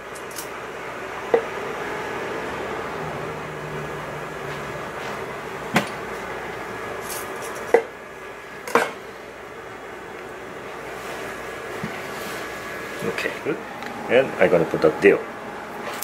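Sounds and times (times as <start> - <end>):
steady background hum: 0.0 - 16.0
kitchenware clinking: 8.7 - 9.0.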